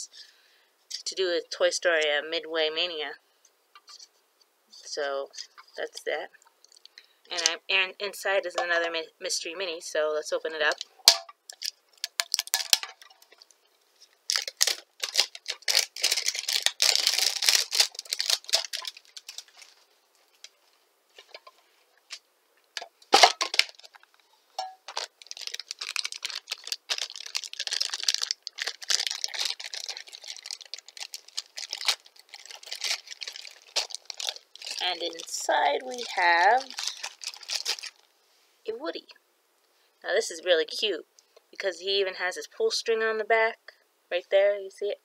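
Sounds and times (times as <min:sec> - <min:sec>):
packaging crinkling and tearing: 0:10.7 - 0:20.6, 0:22.8 - 0:24.2, 0:24.9 - 0:38.1.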